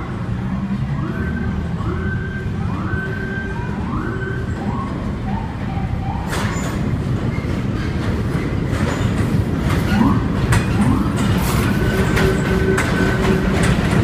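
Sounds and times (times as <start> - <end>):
steady rail rumble: 0.0 - 14.0
siren whooping: 0.7 - 6.5
train wheels clattering on track: 6.2 - 14.0.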